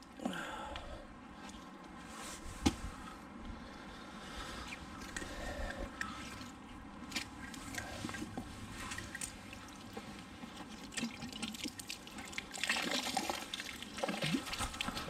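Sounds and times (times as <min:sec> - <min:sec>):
water dripping and trickling: 0:06.0 - 0:15.0.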